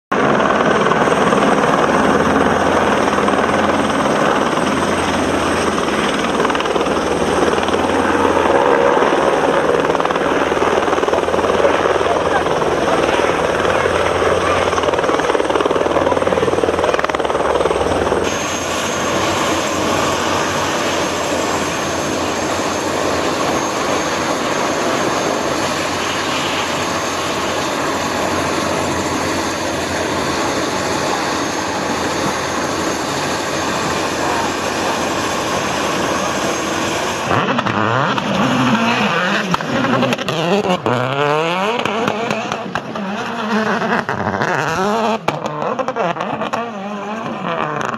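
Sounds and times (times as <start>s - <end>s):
helicopter turbine whine and rotor: 0.1s - 47.9s
rally car engine revving: 37.2s - 47.9s.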